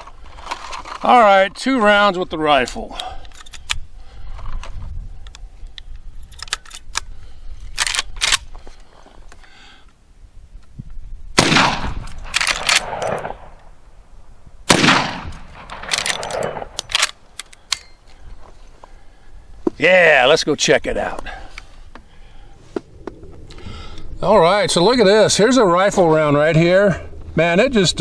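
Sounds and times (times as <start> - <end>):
metallic clicks of rifle action: 2.6 - 9.4, 11.6 - 13.7, 14.7 - 18.2
rifle shots with long echo: 11.3 - 14.0, 14.6 - 17.4.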